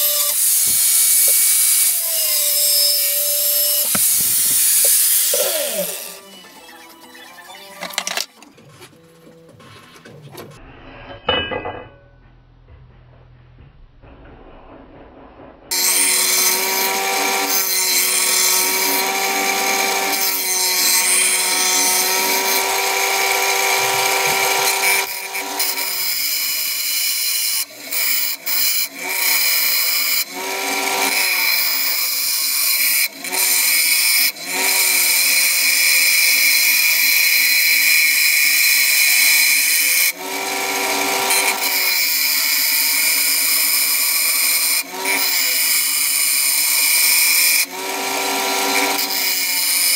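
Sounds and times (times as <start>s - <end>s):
blade grinding hiss: 0.0s - 6.3s
grinder motor hum: 0.0s - 8.5s, 15.7s - 26.8s, 27.8s - 49.9s.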